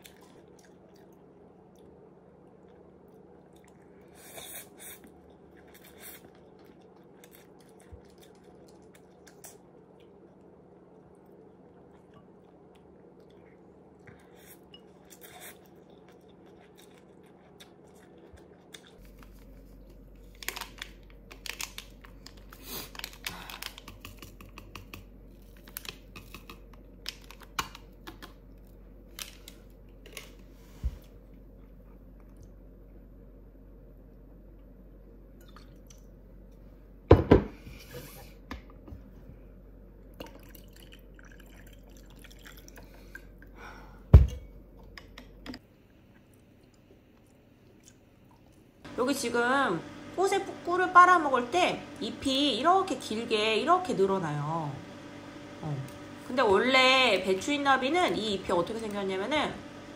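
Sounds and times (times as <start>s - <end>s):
faint chewing: 0.0s - 32.6s.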